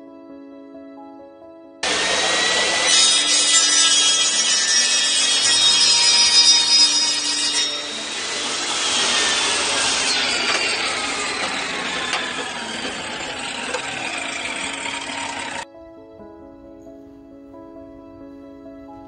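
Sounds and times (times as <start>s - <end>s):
table saw cutting plastic: 1.8s - 15.6s.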